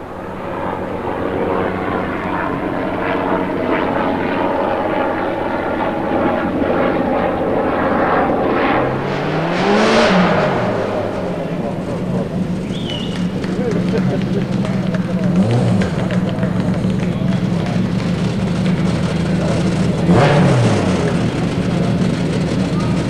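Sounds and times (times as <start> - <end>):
rally car passing at speed: 8.0 - 22.8.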